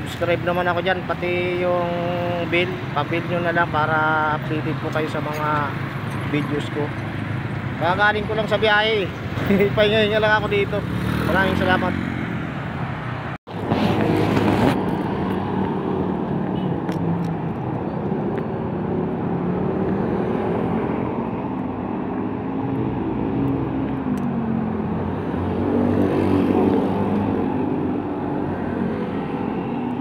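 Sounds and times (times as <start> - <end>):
wind rush on microphone: 13.5 - 30.0.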